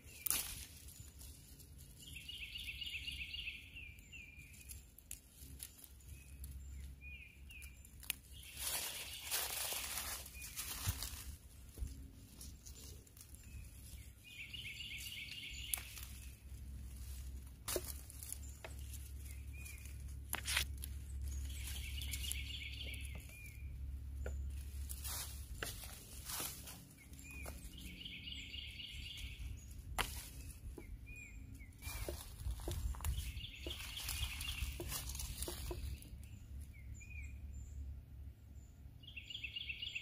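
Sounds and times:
footsteps in leaf litter: 0:00.0 - 0:36.3
low steady rumble: 0:00.0 - 0:40.0
songbird trilling: 0:02.0 - 0:04.8, 0:12.8 - 0:16.4, 0:17.7 - 0:37.7, 0:39.0 - 0:40.0.

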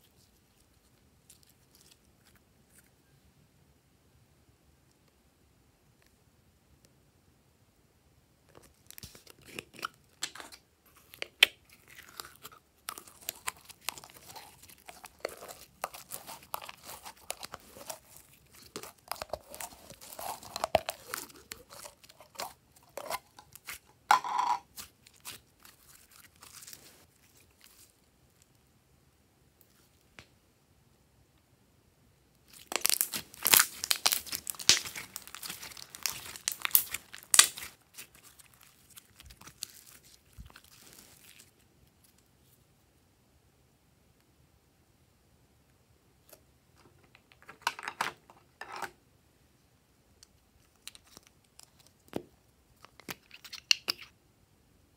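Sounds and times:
slime clicking and crackling: 0:09.0 - 0:23.9, 0:32.5 - 0:41.5.

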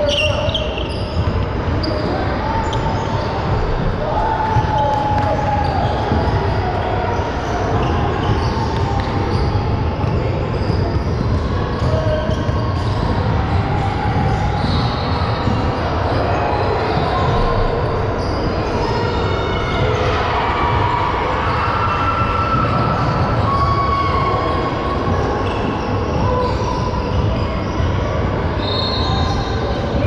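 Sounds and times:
shoe squeaks: 0:00.0 - 0:03.8, 0:04.6 - 0:13.2, 0:14.6 - 0:20.1, 0:21.9 - 0:30.0
murmur of voices: 0:00.0 - 0:30.0.

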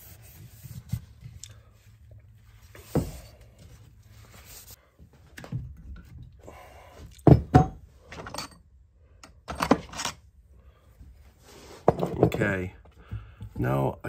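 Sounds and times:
objects knocking on wooden workbench: 0:07.2 - 0:07.8, 0:11.9 - 0:12.4.

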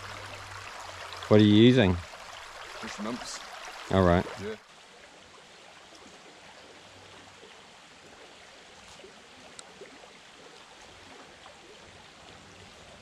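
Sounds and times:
stream water running: 0:00.0 - 0:13.0
faint clicks: 0:09.5 - 0:09.7.

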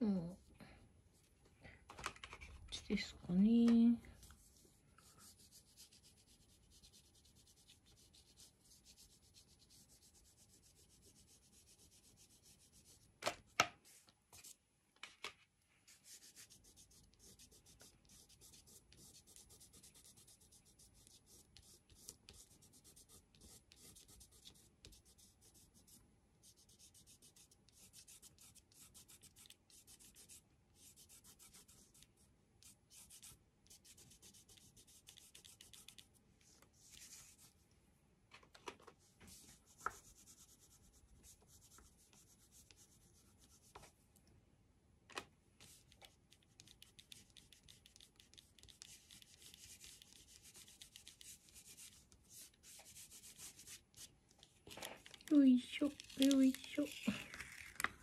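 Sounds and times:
crayon rubbing on paper: 0:04.4 - 0:13.0, 0:15.9 - 0:36.1, 0:46.6 - 0:54.1, 0:55.7 - 0:57.2.

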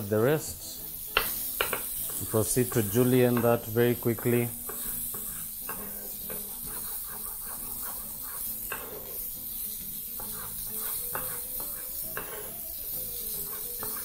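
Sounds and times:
meat sizzling on a griddle: 0:00.0 - 0:14.0
knife tapping on cutting board: 0:01.2 - 0:01.9.

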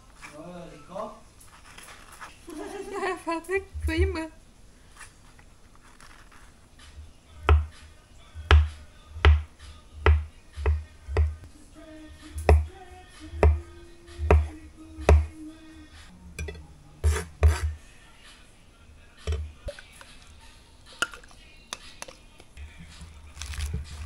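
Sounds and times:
background music with deep thumps: 0:07.0 - 0:11.6, 0:12.2 - 0:15.4, 0:19.2 - 0:19.8.

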